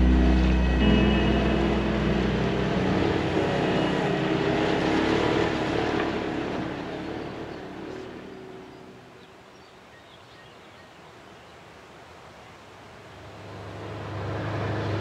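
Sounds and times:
music: 0.0 - 6.2
off-road vehicle engine running: 0.0 - 8.8
road noise: 0.0 - 9.9, 11.6 - 15.0.

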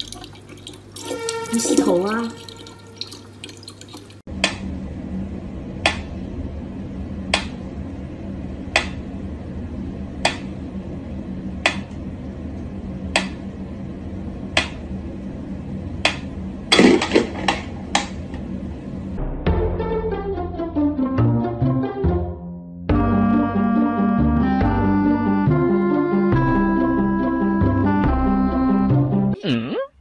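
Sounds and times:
low hum: 4.3 - 19.9.

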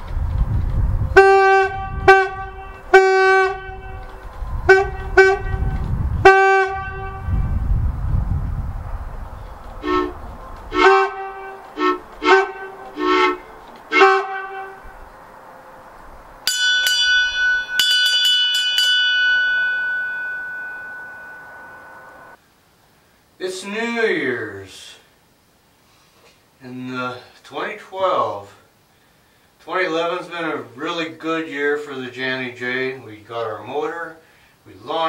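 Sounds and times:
boat air horn blasts: 1.2 - 7.6, 9.8 - 15.0, 19.1 - 22.4
high-pitched boat whistle: 1.2 - 7.6, 9.8 - 15.0, 16.5 - 22.4.

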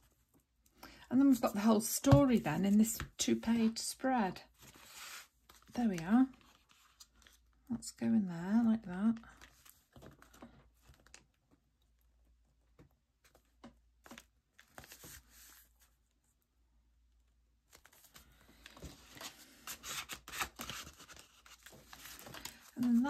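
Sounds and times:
paper crinkling and tearing: 17.7 - 23.0.

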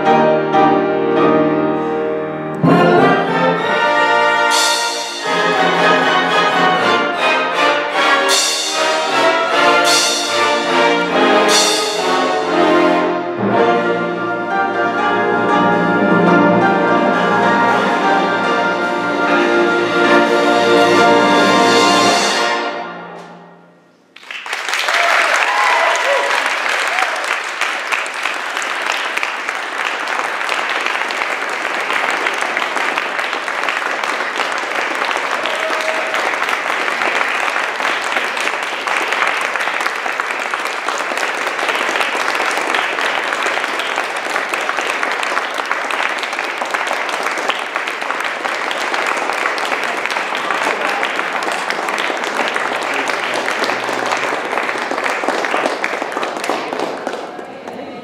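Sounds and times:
audience applauding: 24.1 - 58.0.

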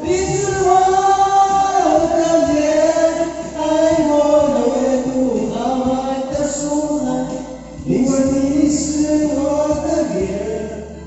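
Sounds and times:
ballad backing track: 0.0 - 11.0
men singing karaoke: 0.0 - 11.0.

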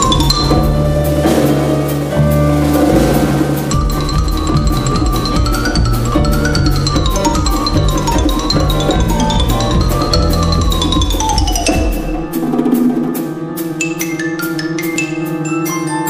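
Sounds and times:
melody over bass and beat: 0.0 - 12.6
struck notes: 0.0 - 16.0.

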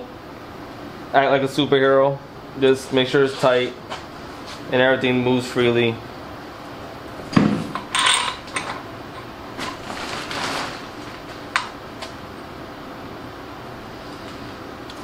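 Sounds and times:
metallic clinks and rattles: 7.8 - 9.3.

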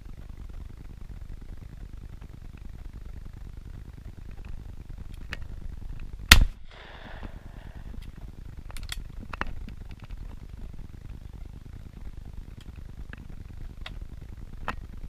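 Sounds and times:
low wind rumble: 0.0 - 15.0
shotgun shot: 6.3 - 7.0.

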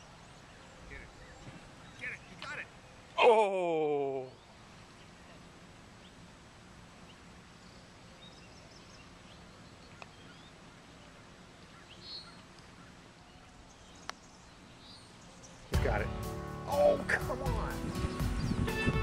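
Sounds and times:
faint outdoor background noise: 0.0 - 19.0
bird chirps: 7.0 - 16.1, 17.3 - 18.8.

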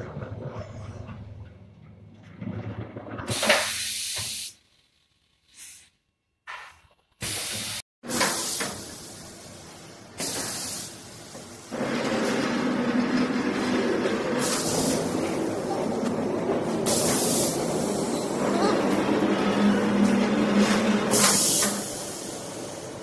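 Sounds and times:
compressed air hissing blasts: 10.2 - 11.1.

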